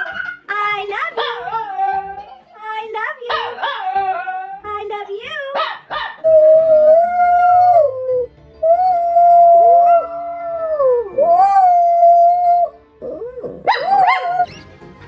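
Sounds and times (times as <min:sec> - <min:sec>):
small dog howling: 0:03.4 - 0:04.6, 0:06.0 - 0:14.5.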